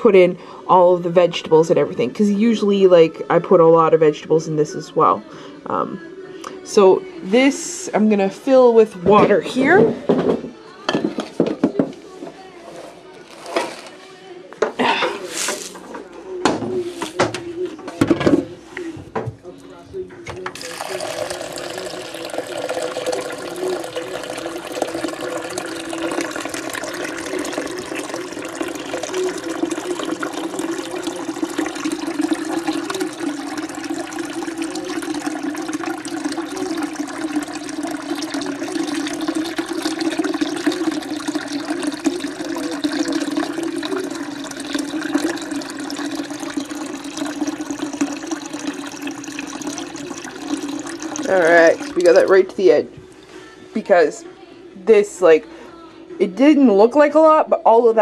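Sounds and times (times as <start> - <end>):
tap water running into crock: 20.4 - 52.7.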